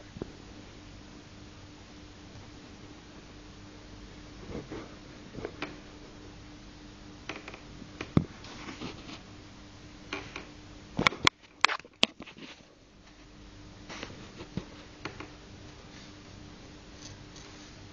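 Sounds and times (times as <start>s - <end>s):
faint steady hum: 0.0s - 17.9s.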